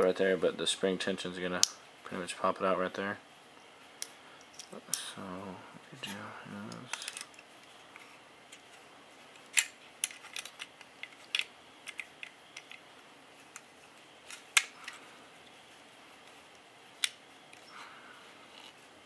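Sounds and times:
small clicks of gun parts fitted: 6.7s - 8.6s, 9.4s - 12.8s.

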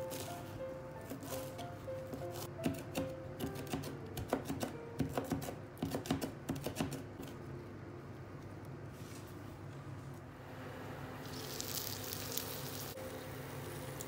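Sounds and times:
knife chopping on cutting board: 1.1s - 7.4s.

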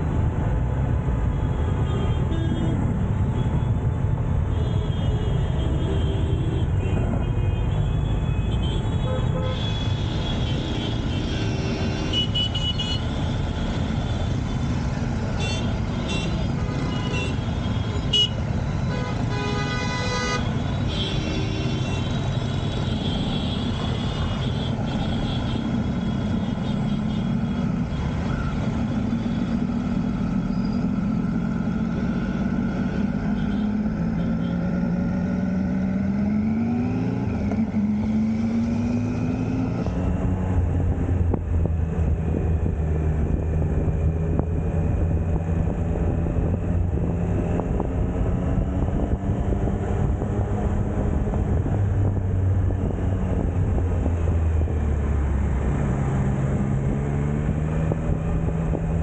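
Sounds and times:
road traffic: 0.0s - 59.0s
vehicle horns honking: 15.4s - 27.4s.

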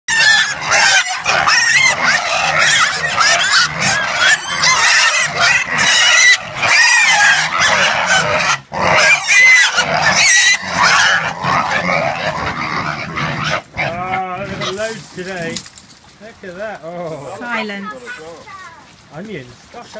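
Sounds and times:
piglets squealing: 0.1s - 14.9s.

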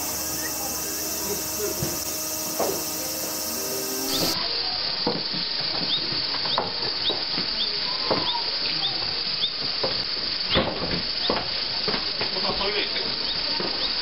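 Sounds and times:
faint high chirps: 0.0s - 4.5s.

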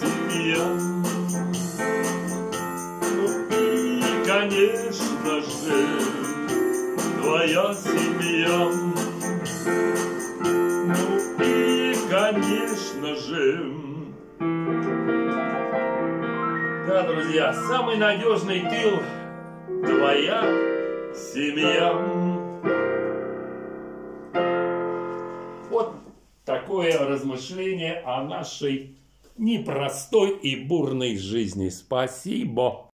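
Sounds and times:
digital piano chords and melody: 0.0s - 26.0s.

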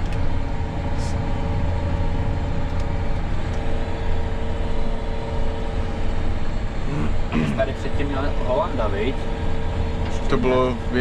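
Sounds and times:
tractor engine rumble from cab: 0.0s - 11.0s.

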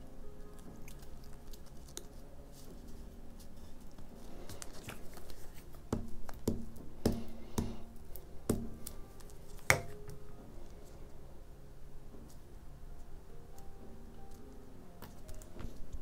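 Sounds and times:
paper rustling: 0.8s - 5.8s.

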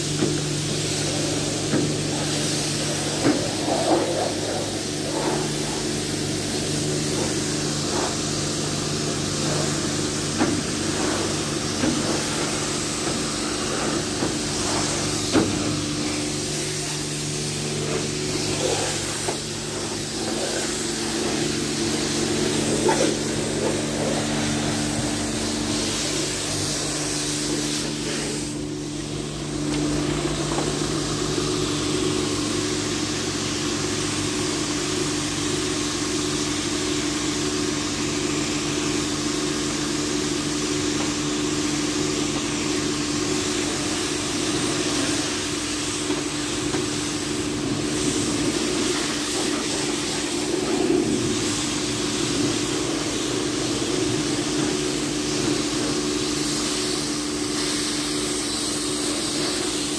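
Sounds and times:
pressure washer jet hissing: 0.0s - 59.9s
machine hum: 5.0s - 33.9s.

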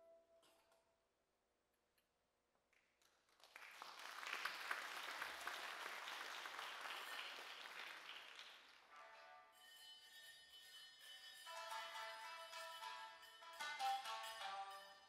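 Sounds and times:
audience applauding: 3.0s - 9.1s.

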